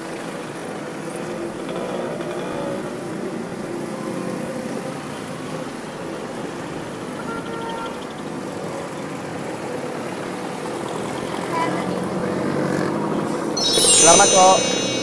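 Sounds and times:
city street traffic: 3.0 - 13.5.

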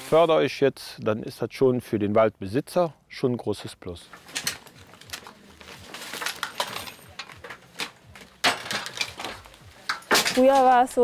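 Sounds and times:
metal tools clinking and clattering: 4.1 - 11.0.

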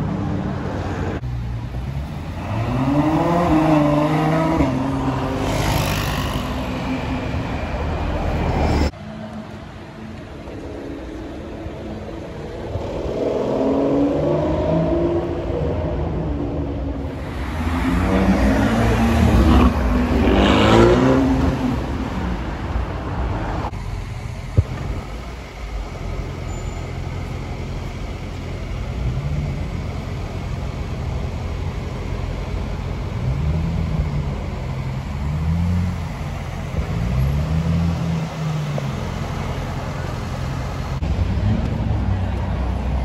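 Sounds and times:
traffic: 0.0 - 43.0
car engine revving hard: 17.6 - 21.6.

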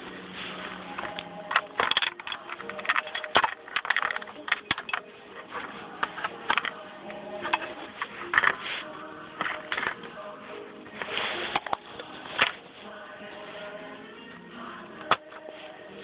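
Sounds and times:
plastic toys clicking and knocking: 0.9 - 10.2, 11.0 - 12.6, 15.0 - 15.5.

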